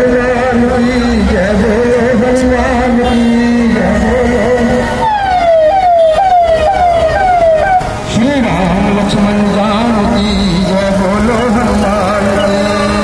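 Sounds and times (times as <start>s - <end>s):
electronic siren sweeping: 4.9s - 7.9s.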